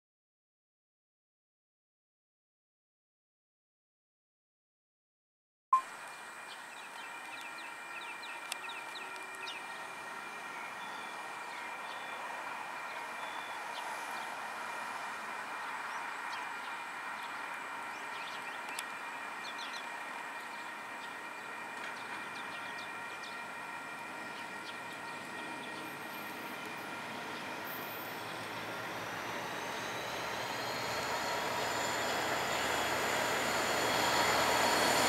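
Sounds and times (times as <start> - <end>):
diesel locomotive approaching: 5.8 - 35.0
birds chirping: 15.6 - 31.5.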